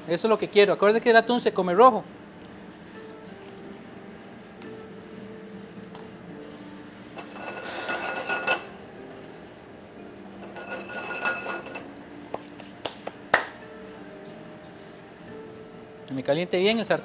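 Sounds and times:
metal cookware scraping and rattling: 7.2 - 8.8, 10.4 - 11.9.

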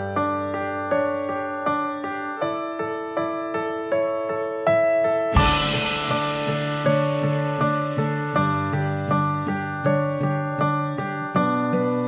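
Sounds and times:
instrumental background music: 4.0 - 12.0.

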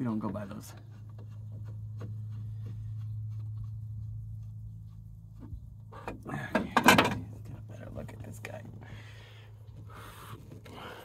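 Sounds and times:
steady low hum: 0.0 - 11.0
metal housing clattering: 5.9 - 7.5.

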